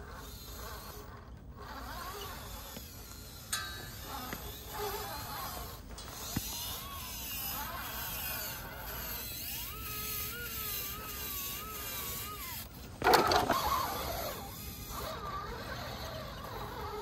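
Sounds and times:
electric motor whining: 4.0s - 17.0s.

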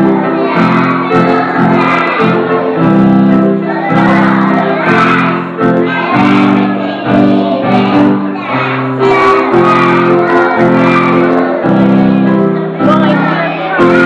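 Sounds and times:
loud music with singing: 9.1s - 14.0s.

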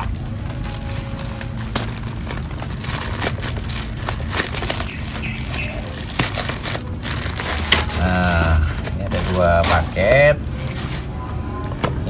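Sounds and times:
scissors cutting plastic: 0.0s - 11.1s
plastic crinkling and tearing: 0.0s - 12.0s.

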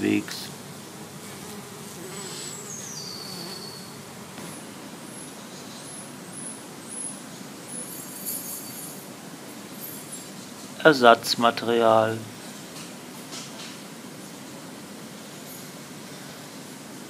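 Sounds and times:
honeybees buzzing: 0.0s - 8.2s.

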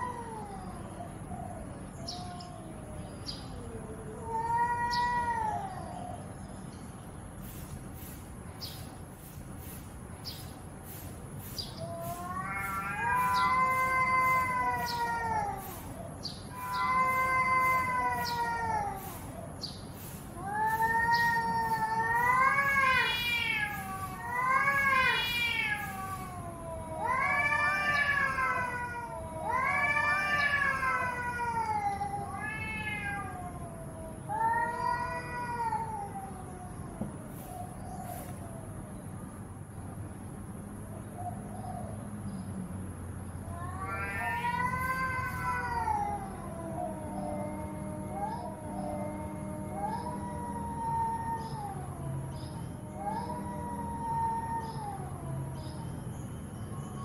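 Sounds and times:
cat yowling: 0.0s - 6.2s, 11.7s - 38.7s, 43.4s - 55.8s.

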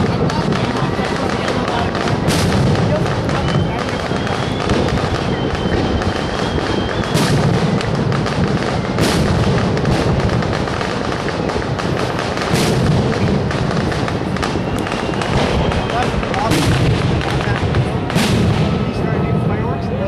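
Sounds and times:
firework shell bursts: 0.0s - 18.8s
fireworks crackling: 0.0s - 20.0s
thin high whistle: 3.2s - 7.6s, 14.4s - 16.5s.

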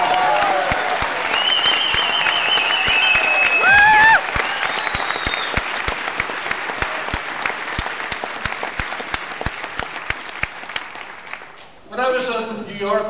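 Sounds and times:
audience applauding: 0.0s - 11.6s
hands clapping close by: 0.0s - 11.7s.

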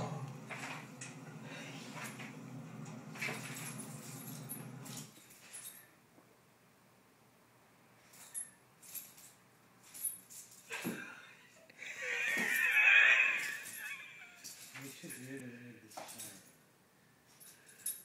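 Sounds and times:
light jingling: 3.0s - 6.0s, 8.0s - 11.0s, 13.4s - 16.7s, 17.3s - 18.0s.

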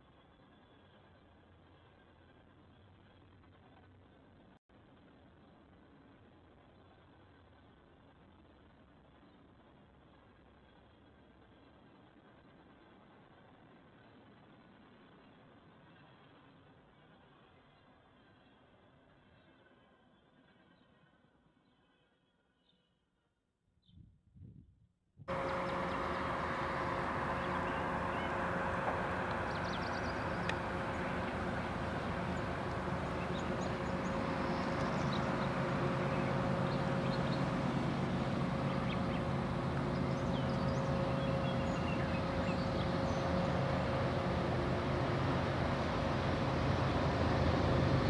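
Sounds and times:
birds chirping: 25.3s - 48.0s
diesel locomotive engine drone: 25.3s - 48.0s
high whine: 25.3s - 48.0s.

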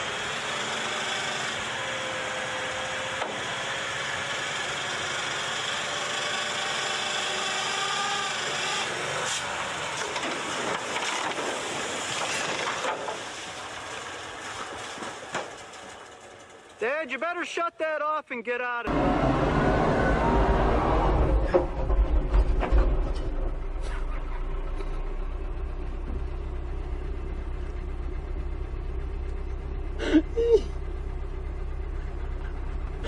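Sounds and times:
truck engine running: 0.0s - 17.1s, 18.9s - 33.0s.

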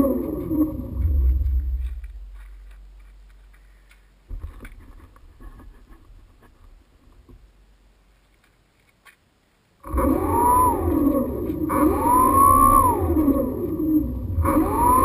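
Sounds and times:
quadcopter motors and propellers: 0.0s - 2.2s, 9.8s - 15.0s
low rumbles: 0.0s - 4.7s, 9.8s - 15.0s.

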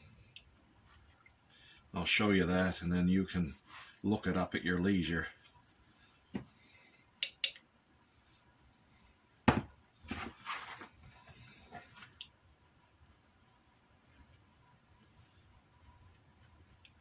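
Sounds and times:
leather rustling on cutting mat: 10.0s - 11.9s.

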